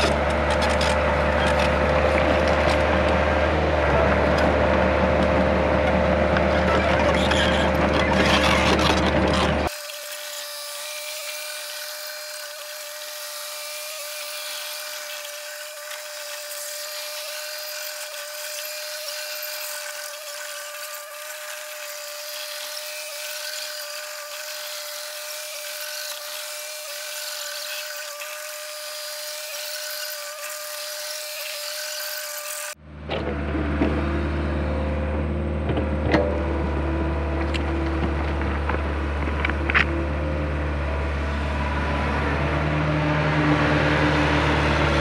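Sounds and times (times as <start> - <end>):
high-pitched mechanical whine: 0.0 - 9.8.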